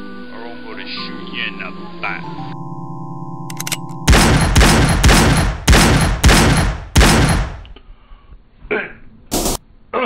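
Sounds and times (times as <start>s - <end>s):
gunshots ringing out: 4.1s - 7.8s.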